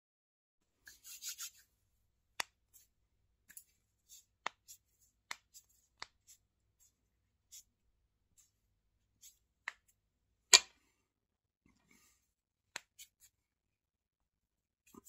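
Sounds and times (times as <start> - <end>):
hands rubbing near microphone: 0.8 - 1.7.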